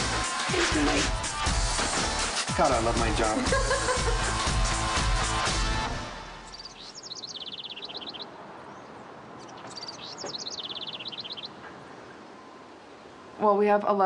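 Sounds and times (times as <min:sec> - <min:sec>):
outdoor background hush: 0:00.0 - 0:14.0
songbird singing: 0:06.3 - 0:14.0.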